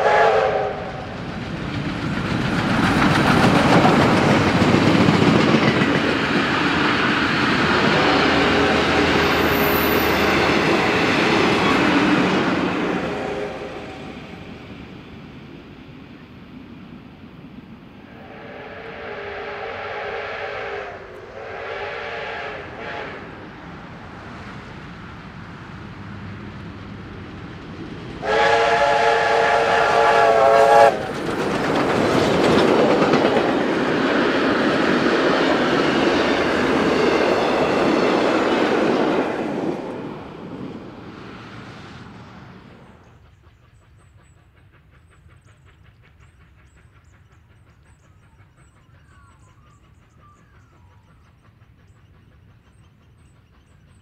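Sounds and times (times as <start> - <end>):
steam locomotive chime whistle: 0.0 - 1.2, 7.7 - 14.4, 18.1 - 23.5, 28.2 - 31.1, 35.9 - 38.5
steam train passing: 0.0 - 54.0.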